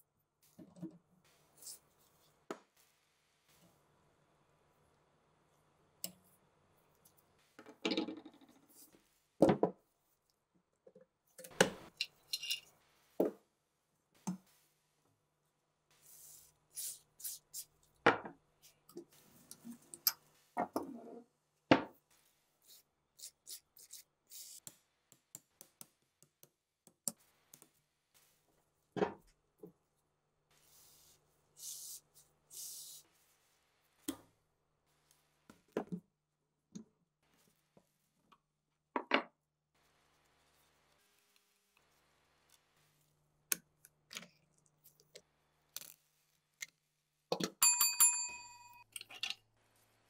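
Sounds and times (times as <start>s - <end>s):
metal clinks and scrapes: 11.9s - 12.7s.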